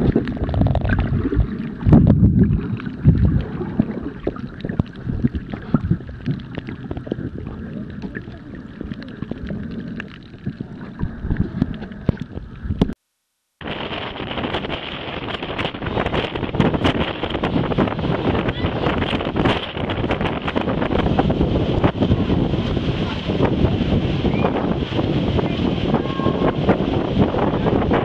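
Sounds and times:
small underwater clicks: 0.0s - 13.0s
underwater sloshing and bubbling: 0.0s - 13.0s
wind hiss on microphone: 0.0s - 13.0s, 13.6s - 28.0s.

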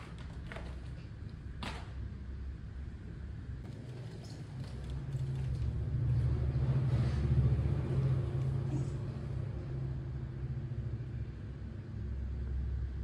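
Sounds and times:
passing vehicle engine rumble: 5.2s - 13.0s.

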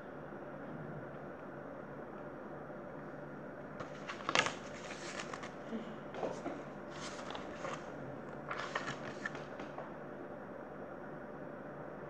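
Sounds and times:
book pages rustling: 3.8s - 5.6s, 6.2s - 9.9s.

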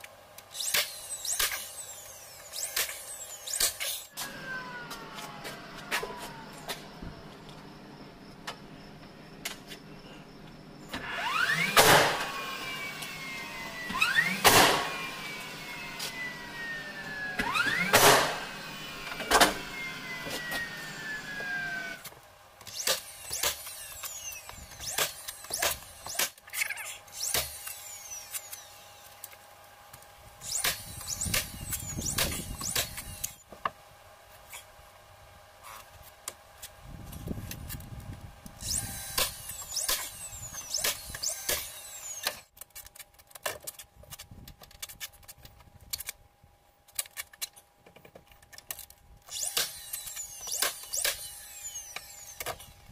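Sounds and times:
cordless drill driving screws: 11.0s - 26.4s, 49.3s - 52.8s.

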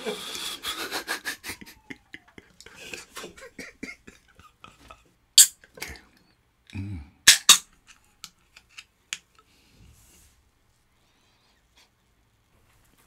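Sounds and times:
can pull tab cracking: 7.3s - 7.6s.

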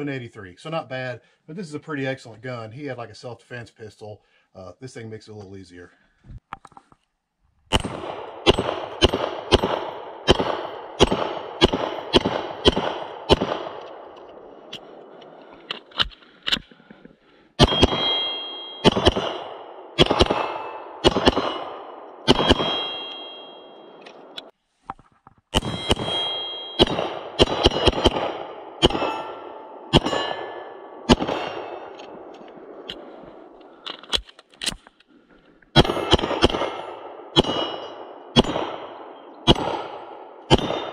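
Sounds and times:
pistol firing rapid shots: 7.7s - 15.0s, 17.6s - 24.3s, 26.8s - 33.1s, 35.8s - 40.9s
steel targets ringing: 17.6s - 24.4s, 25.6s - 32.0s, 35.8s - 40.9s.

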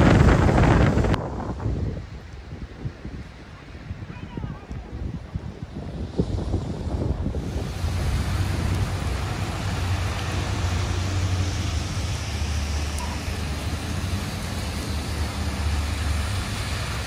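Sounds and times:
tyres hissing on wet road: 0.0s - 17.0s
low engine hum: 6.0s - 17.0s.

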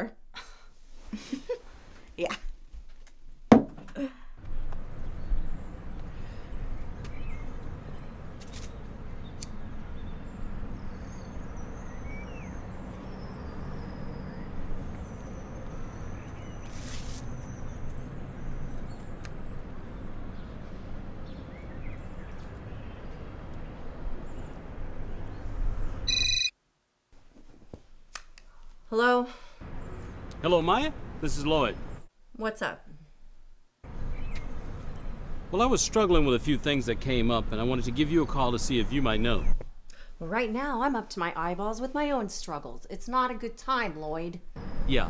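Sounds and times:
electronic telephone ringing: 26.1s - 26.5s.

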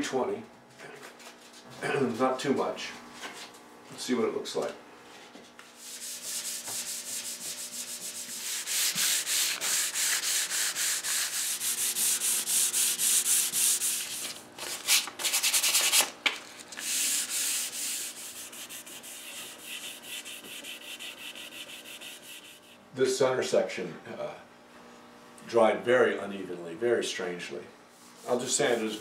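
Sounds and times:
sandpaper rubbing on wood: 5.8s - 16.1s, 16.8s - 22.8s, 28.0s - 29.0s.

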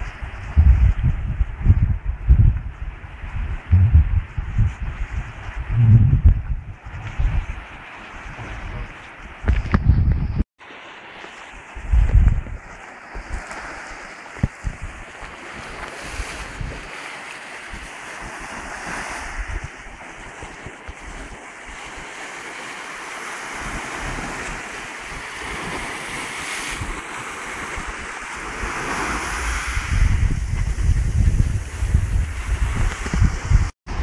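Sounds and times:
wind buffeting microphone: 0.0s - 10.5s, 11.5s - 22.4s, 23.1s - 34.0s
small waves on sandy beach: 6.8s - 9.4s, 10.6s - 34.0s.

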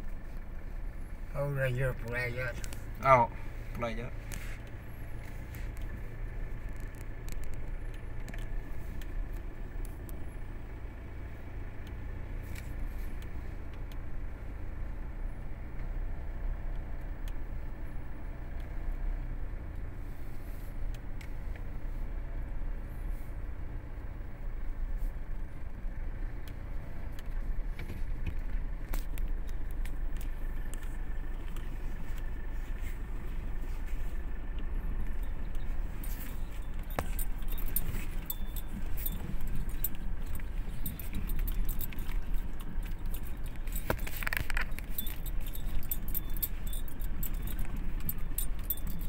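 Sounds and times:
car engine and road rumble: 0.0s - 49.0s
light clicks and rattles: 1.6s - 10.4s, 26.4s - 49.0s.

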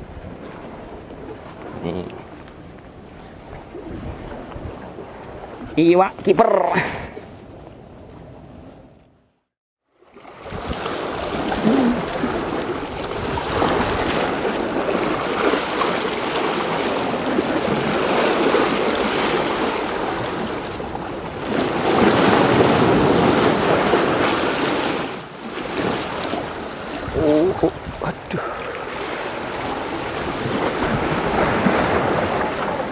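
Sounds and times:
waves breaking against rocks: 10.1s - 32.9s.

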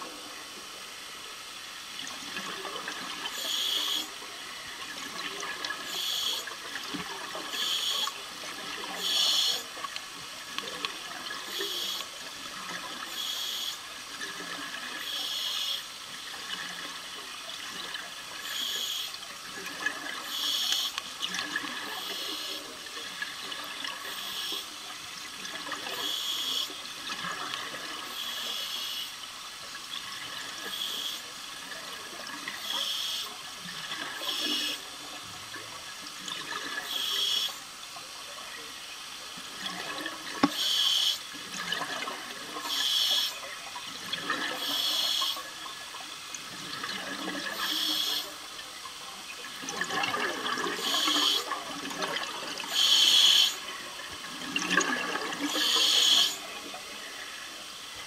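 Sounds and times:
diver regulator hiss: 3.2s - 4.3s, 5.8s - 6.6s, 7.2s - 9.8s, 10.7s - 16.0s, 18.3s - 19.3s, 20.1s - 21.0s, 21.8s - 23.1s, 24.0s - 24.9s, 25.8s - 27.2s, 27.8s - 29.3s, 30.4s - 34.9s, 36.7s - 37.7s, 40.3s - 41.4s, 42.6s - 43.5s, 44.5s - 45.6s, 47.3s - 48.5s, 50.7s - 51.6s, 52.5s - 53.8s, 55.3s - 57.7s.

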